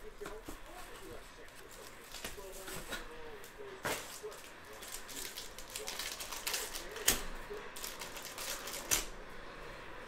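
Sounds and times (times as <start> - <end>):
foil wrapper crinkling and tearing: 3.9 - 9.1.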